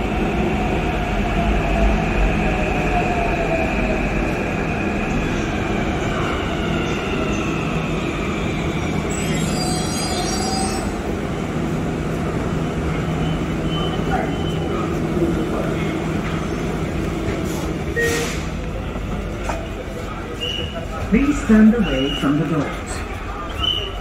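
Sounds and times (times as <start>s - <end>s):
brief high squeal: 9.1s - 10.9s, 18.0s - 18.4s.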